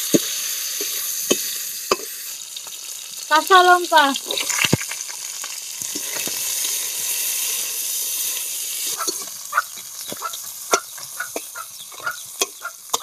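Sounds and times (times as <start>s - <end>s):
chillies sizzling in oil: 0.0s - 13.0s
metal spatula scraping wok: 0.1s - 2.3s, 5.9s - 13.0s.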